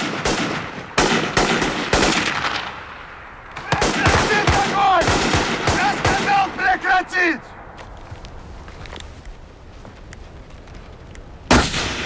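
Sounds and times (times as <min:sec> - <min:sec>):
gunfire bursts: 0:00.0 - 0:03.0, 0:03.6 - 0:06.8, 0:11.5 - 0:12.0
man shouting: 0:03.6 - 0:05.1, 0:05.7 - 0:07.5.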